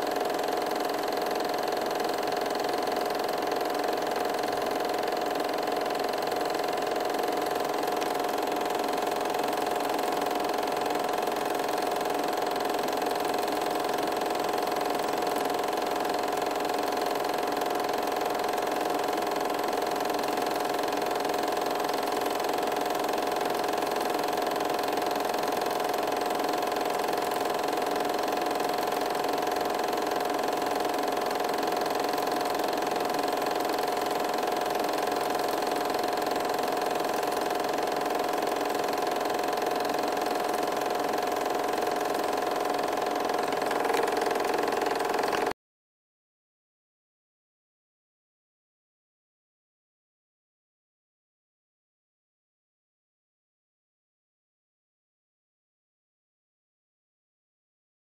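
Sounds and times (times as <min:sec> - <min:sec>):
film projector whirring: 0:00.0 - 0:45.6.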